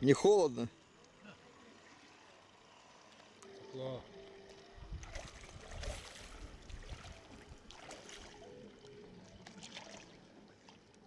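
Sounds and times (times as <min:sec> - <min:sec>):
sea water lapping softly: 0:00.8 - 0:11.0
brief water splashes: 0:05.0 - 0:08.5.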